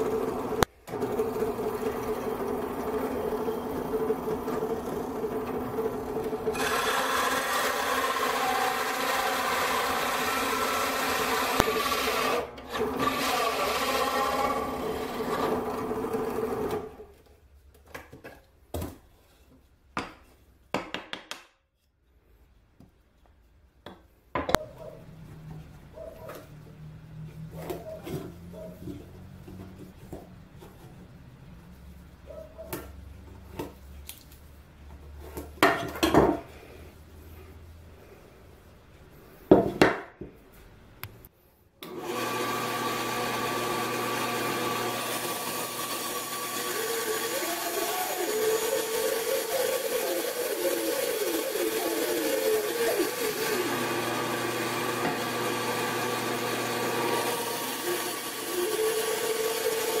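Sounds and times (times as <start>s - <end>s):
bandsaw running: 0.0s - 17.1s, 41.8s - 60.0s
bandsaw blade cutting wood: 6.4s - 17.0s, 41.8s - 60.0s.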